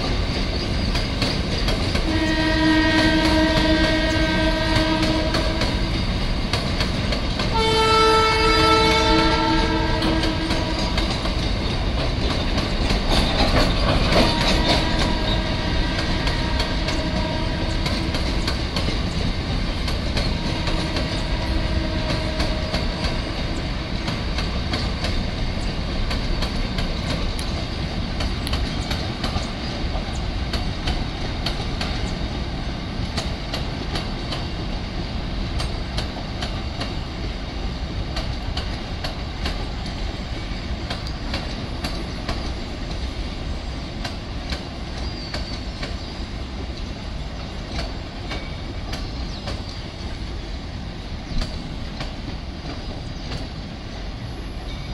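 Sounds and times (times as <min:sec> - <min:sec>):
wheels clicking over rail joints: 0:00.0 - 0:50.4, 0:51.0 - 0:54.9
train wheels rumbling on rail: 0:00.0 - 0:54.9.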